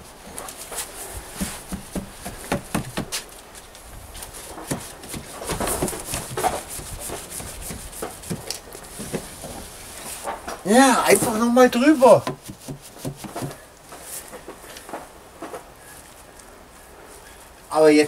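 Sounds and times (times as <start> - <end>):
paintbrush scrubbing wooden boards: 0.6 - 3.3, 4.2 - 10.3, 11.0 - 13.6.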